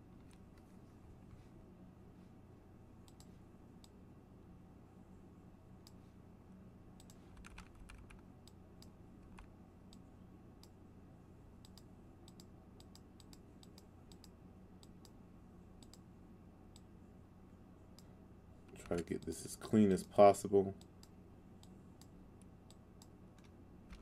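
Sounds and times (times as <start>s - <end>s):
low steady hum: 0.0s - 24.0s
computer mouse clicks: 3.0s - 4.0s, 7.0s - 10.0s, 11.6s - 15.2s, 15.8s - 16.0s.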